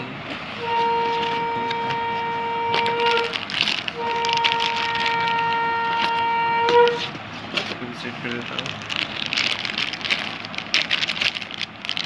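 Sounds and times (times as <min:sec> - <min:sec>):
horn blast: 0:00.0 - 0:07.2
plastic packaging crinkling: 0:00.7 - 0:12.0.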